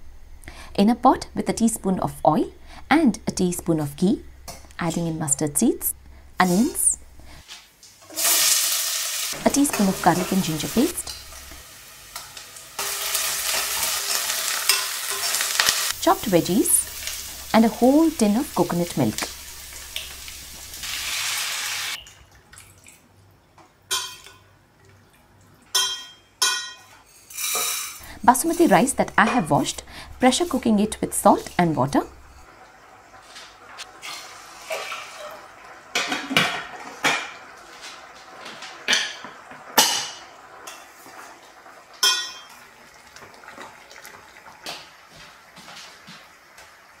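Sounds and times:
metal clinks on steel pan: 0:42.0 - 0:42.5.

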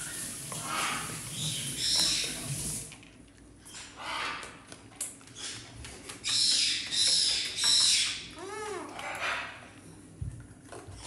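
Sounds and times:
parrot squawking: 0:00.6 - 0:02.4.

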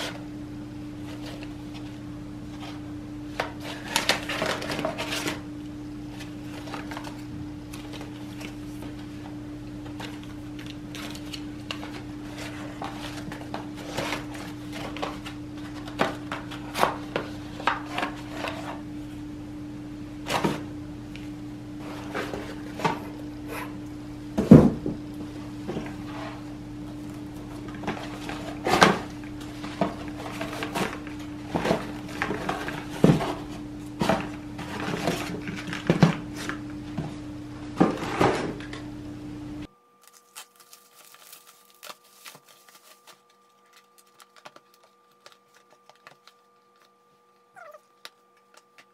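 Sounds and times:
packing paper rustling: 0:01.0 - 0:18.8, 0:25.7 - 0:36.6, 0:40.0 - 0:48.9
packing tape peeling off box: 0:40.0 - 0:47.0.

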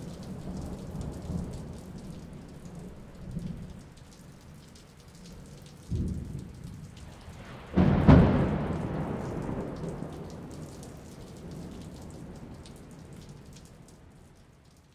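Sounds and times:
raindrop ticks: 0:00.0 - 0:14.9
steady rain: 0:00.0 - 0:14.9
thunder rumbling: 0:05.9 - 0:13.2.

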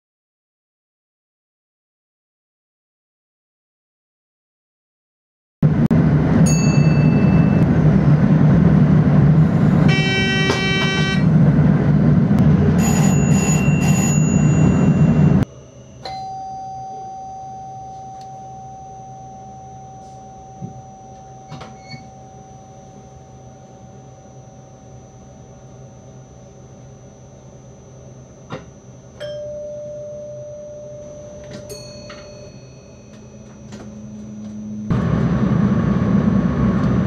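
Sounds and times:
train rolling rumble: 0:05.6 - 0:15.5, 0:31.1 - 0:37.0
electronic cab chime: 0:06.4 - 0:07.7, 0:09.9 - 0:11.3, 0:12.7 - 0:26.4, 0:29.1 - 0:34.9
steady electrical tone: 0:12.4 - 0:36.8.

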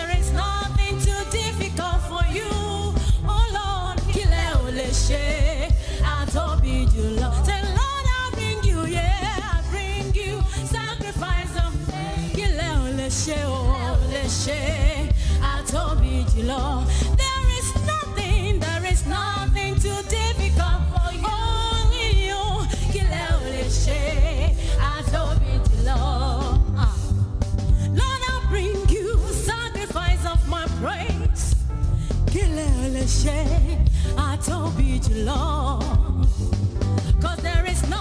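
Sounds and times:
singers leading a praise song: 0:00.0 - 0:27.3
band with bass and drum beat: 0:00.0 - 0:38.0.

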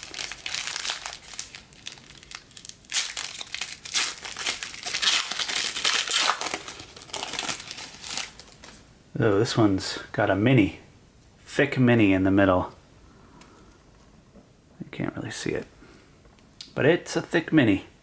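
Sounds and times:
foil wrapper crinkling and tearing: 0:00.0 - 0:08.8.

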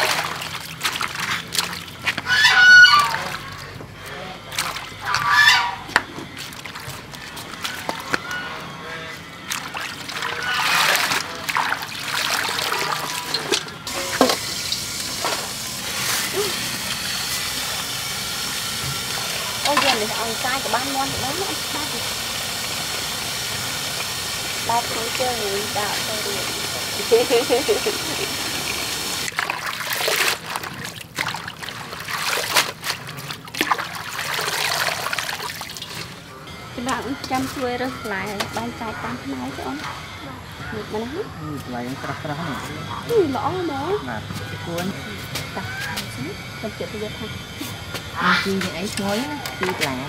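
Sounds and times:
water splashing into steel bowl: 0:09.4 - 0:36.1.

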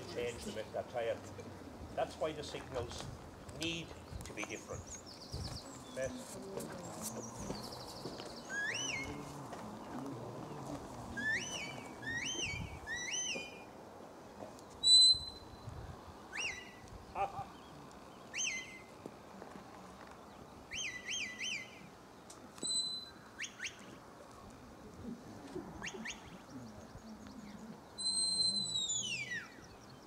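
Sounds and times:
short sharp whistles: 0:14.8 - 0:15.6, 0:28.0 - 0:29.4.

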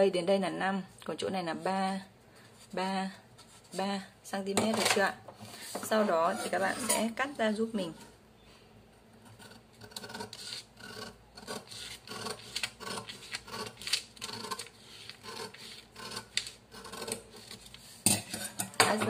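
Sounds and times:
scissors snipping paper: 0:10.0 - 0:17.7.

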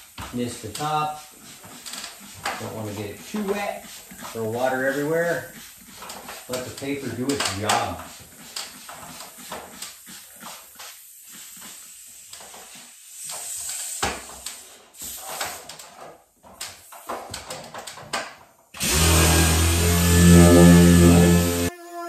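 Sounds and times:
orbital sander running: 0:18.8 - 0:21.7.

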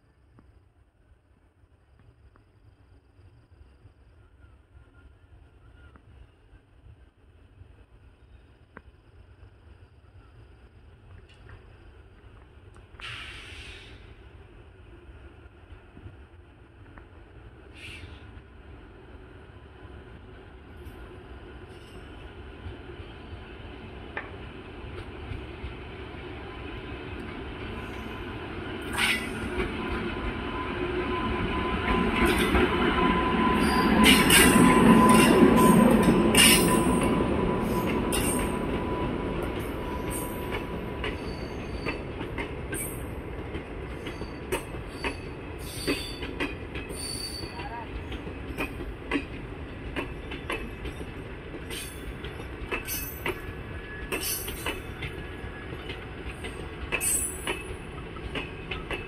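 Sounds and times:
train rumbling past: 0:00.0 - 0:59.0
wheel and brake squeals: 0:33.3 - 0:37.0, 0:41.1 - 0:42.1, 0:44.0 - 0:46.3, 0:46.9 - 0:47.7.

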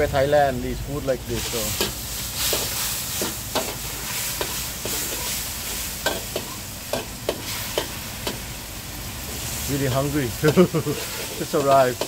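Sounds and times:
steady sizzle: 0:00.0 - 0:12.0
metal ladle scraping a wok: 0:01.4 - 0:08.4, 0:10.8 - 0:12.0.

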